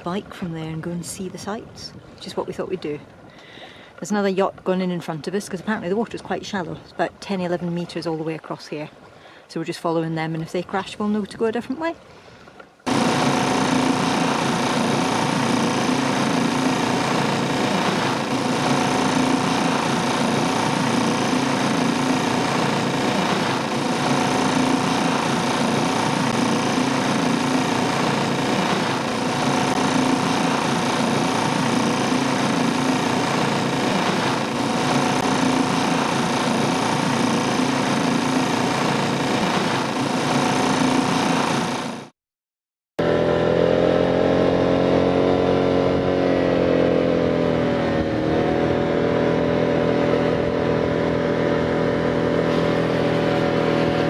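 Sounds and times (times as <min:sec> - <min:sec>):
boat engine running: 0:00.0 - 0:42.1, 0:43.0 - 0:54.0
scooter engine running: 0:12.8 - 0:42.1, 0:43.0 - 0:54.0.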